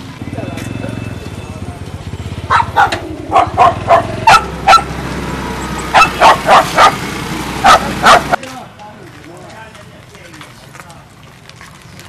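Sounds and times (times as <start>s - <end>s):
dog barking: 2.5s - 5.0s, 5.9s - 7.0s, 7.6s - 8.4s.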